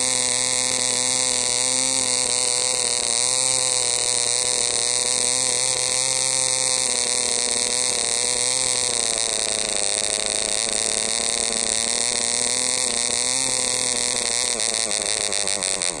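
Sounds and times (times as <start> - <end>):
model engine high buzzing whine: 0.0 - 16.0.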